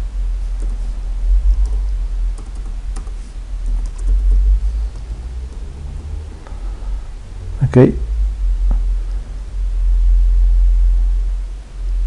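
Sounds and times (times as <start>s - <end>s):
steady low hum: 0.0s - 12.0s
keyboard keystrokes: 1.6s - 4.2s.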